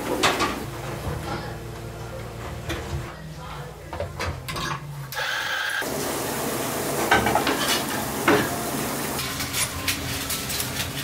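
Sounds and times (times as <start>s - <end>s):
tap water running into sink: 5.8s - 9.2s.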